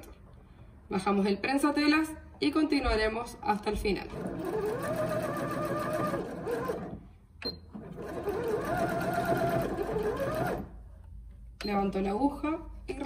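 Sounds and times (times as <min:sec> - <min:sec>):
sewing machine stitching: 0:04.0 - 0:07.0, 0:07.6 - 0:10.8.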